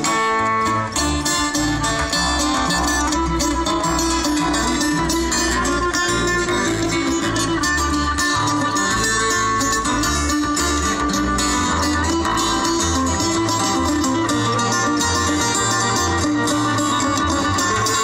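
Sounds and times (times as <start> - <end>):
acoustic bluegrass band playing: 0.0 - 18.0.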